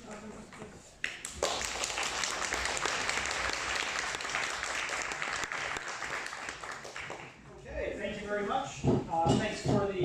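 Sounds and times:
audience applauding: 1.2s - 7.4s.

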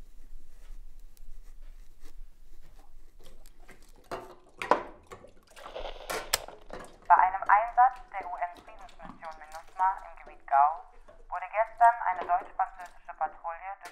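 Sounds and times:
pen scratching on paper: 0.1s - 3.2s
water splashing in sink: 2.9s - 13.9s.

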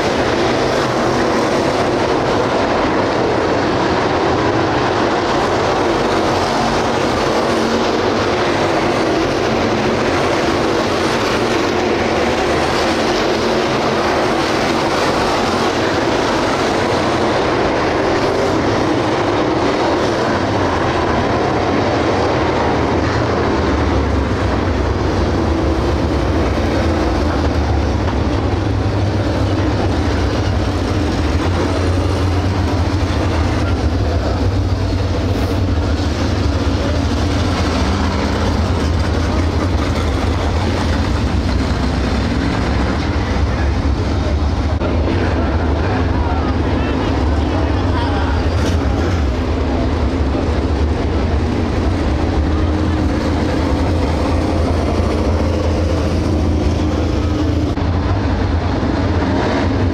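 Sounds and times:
deep heavy engine rumble: 0.0s - 59.9s
race car engines droning: 0.0s - 59.9s.

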